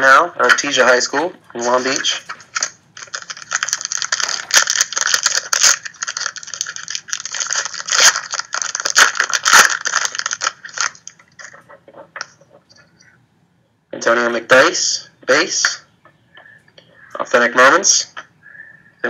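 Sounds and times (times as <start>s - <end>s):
foil wrapper crinkling: 1.7s - 12.6s.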